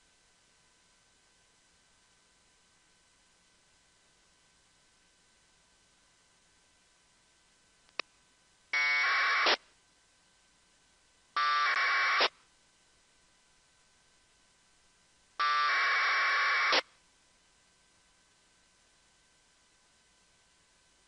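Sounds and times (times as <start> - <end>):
data packet buzzes: 8.8 - 9.6, 11.4 - 12.4, 15.4 - 16.9.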